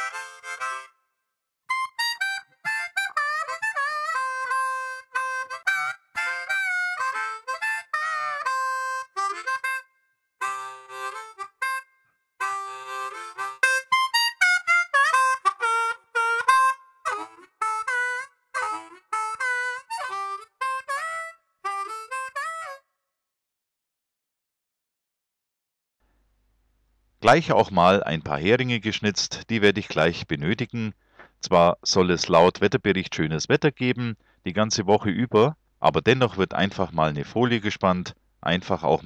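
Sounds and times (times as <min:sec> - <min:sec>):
harmonica tune: 0:00.0 - 0:01.1, 0:01.7 - 0:22.9.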